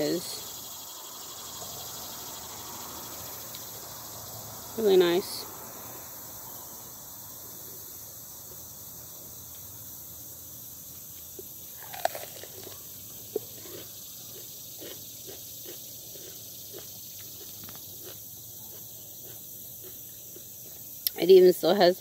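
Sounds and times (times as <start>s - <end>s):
person chewing crisp pepper: 11.4s - 21.2s.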